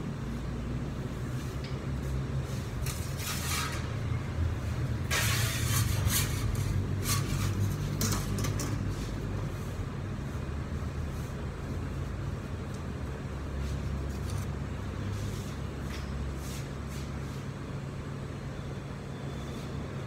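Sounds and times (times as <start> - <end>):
kitchen machinery hum: 0.0 - 20.0
pizza peel scraping on counter: 2.5 - 4.2, 5.0 - 8.1.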